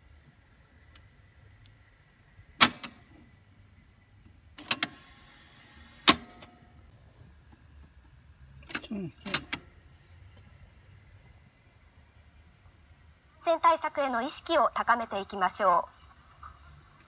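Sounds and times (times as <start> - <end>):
tape whirring: 0.0 - 9.6
video recorder keys clunking: 2.5 - 3.3, 4.2 - 5.0, 5.9 - 9.6.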